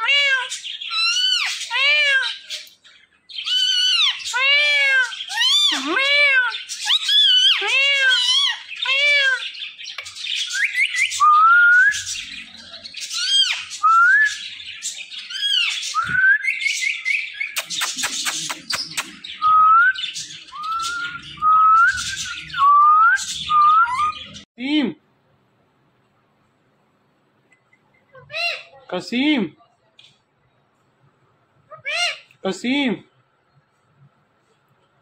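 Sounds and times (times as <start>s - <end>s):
parakeet squawking and whistling: 0.0s - 2.7s, 3.3s - 24.4s.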